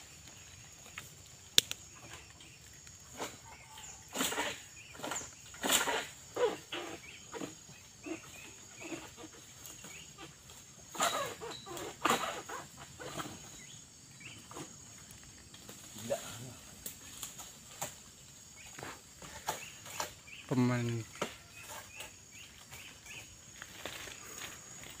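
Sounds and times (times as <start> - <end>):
palm fronds rustling and crackling: 0.0 - 25.0
fronds snapping and crashing: 0.8 - 2.3, 14.4 - 20.3.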